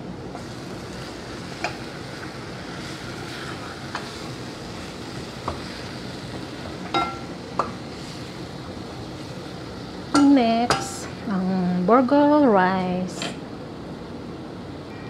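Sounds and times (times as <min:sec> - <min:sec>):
meat sizzling in a pot: 0:00.3 - 0:11.5.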